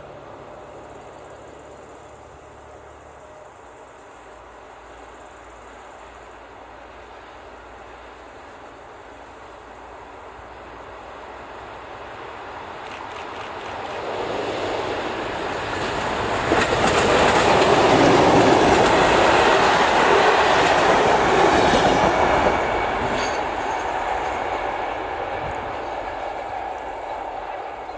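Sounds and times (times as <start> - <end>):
wheels clickety-clack over rail joints: 12.7 - 27.9.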